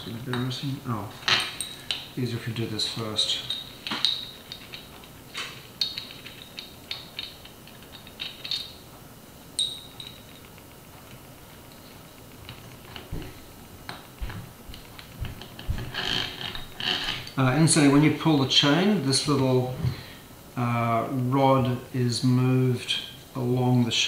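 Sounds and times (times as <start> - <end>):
small metal parts clicking: 2.9 - 8.9, 9.6 - 13.0.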